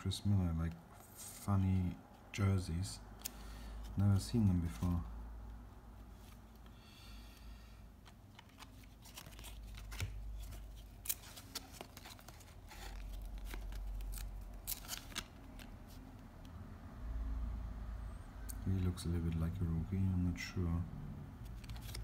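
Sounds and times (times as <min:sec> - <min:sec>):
cardboard cards shuffling: 0:08.0 - 0:16.3, 0:21.4 - 0:22.0.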